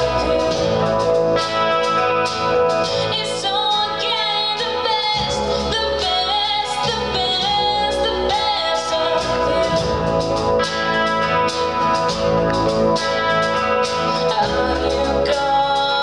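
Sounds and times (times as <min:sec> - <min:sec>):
woman singing: 0:00.0 - 0:01.7, 0:03.0 - 0:10.2, 0:14.1 - 0:16.0
drums: 0:00.0 - 0:16.0
electric guitar: 0:00.0 - 0:16.0.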